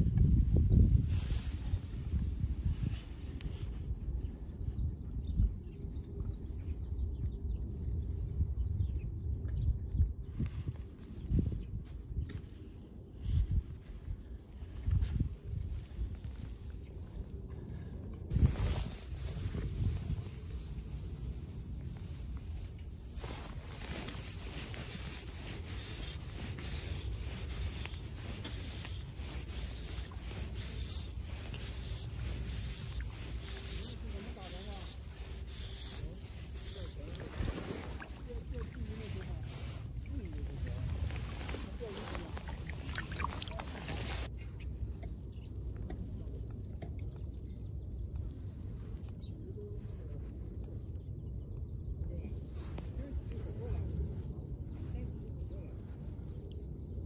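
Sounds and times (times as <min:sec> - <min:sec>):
fabric rubbing on microphone: 0:00.0 - 0:03.8, 0:10.3 - 0:17.3, 0:18.3 - 0:44.3, 0:52.3 - 0:55.9
faint water sloshing: 0:16.7 - 0:44.3.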